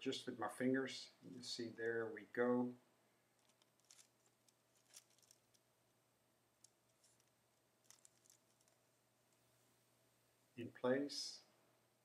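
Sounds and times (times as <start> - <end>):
faint clicks and rustles of wires: 3.3 - 9.7.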